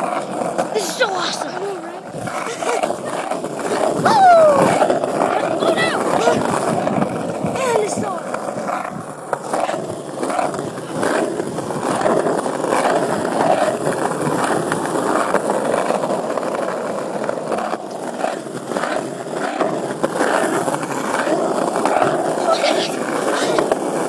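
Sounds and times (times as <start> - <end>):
phone microphone rubbing on jacket: 22.2 - 23.8.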